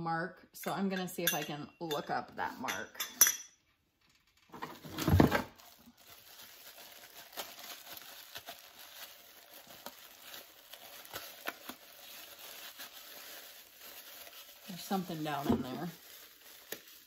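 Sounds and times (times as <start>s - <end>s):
plastic wrapping crinkling: 4.0s - 17.0s.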